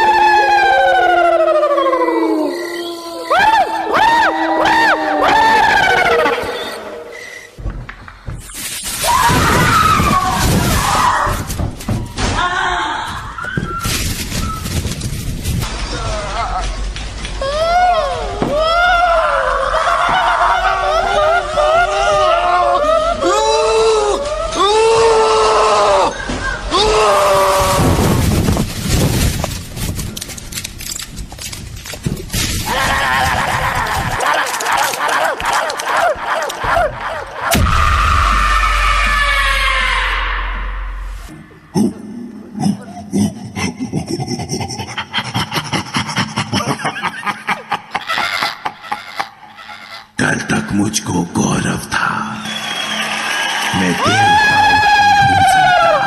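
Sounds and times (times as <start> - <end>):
high wavering neigh-like cry: 0.0 - 7.5
shrieking wailing voices: 0.0 - 7.5, 17.4 - 28.2, 32.6 - 41.0, 53.7 - 56.0.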